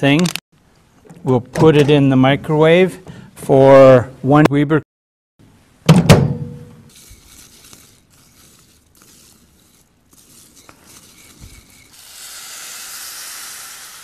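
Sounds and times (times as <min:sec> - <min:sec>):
liquid pouring hiss: 0:06.9 - 0:14.0.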